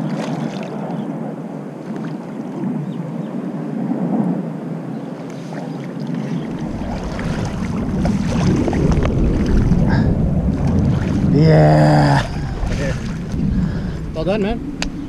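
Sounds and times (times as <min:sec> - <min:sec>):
water sloshing and splashing: 0:00.0 - 0:01.0, 0:01.8 - 0:02.6, 0:05.3 - 0:13.7
wind rumble on microphone: 0:00.0 - 0:15.0.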